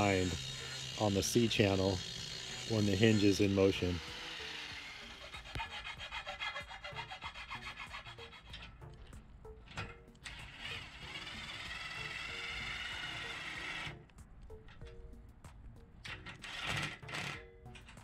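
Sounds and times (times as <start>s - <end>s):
metal rasping on aluminum: 0.0s - 14.1s, 16.0s - 18.0s.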